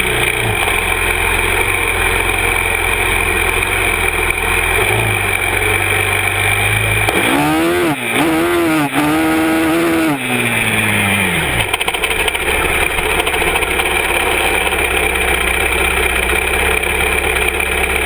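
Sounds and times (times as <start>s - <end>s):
quad bike engine revving: 0.0s - 18.0s.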